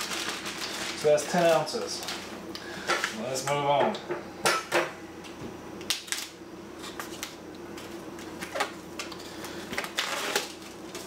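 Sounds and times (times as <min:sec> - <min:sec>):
plastic crinkling: 0:00.0 - 0:02.3.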